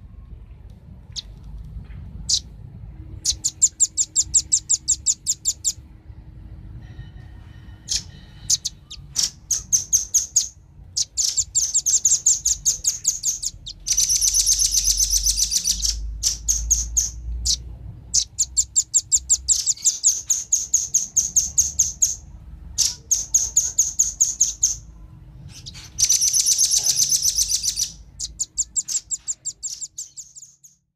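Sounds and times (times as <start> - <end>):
birds calling sharp chip notes: 7.8 - 22.2, 22.8 - 30.8.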